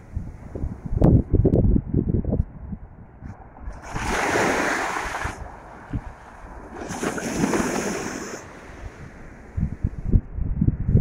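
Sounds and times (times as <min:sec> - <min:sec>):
wind gusting on microphone: 0:00.0 - 0:11.0
small waves washing onto sand: 0:03.7 - 0:09.6.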